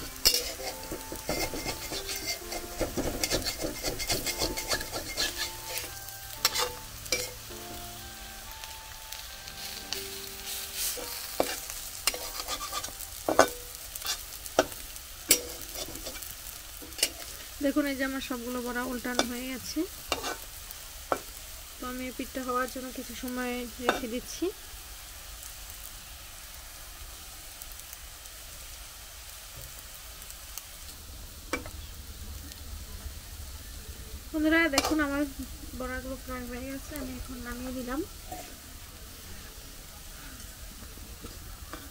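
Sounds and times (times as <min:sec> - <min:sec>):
metal spatula scraping a pan: 0:00.0 - 0:07.5, 0:10.4 - 0:17.6, 0:20.0 - 0:21.3
fritters sizzling in hot oil: 0:00.0 - 0:41.9
spatula clinking on pan: 0:00.2 - 0:07.4.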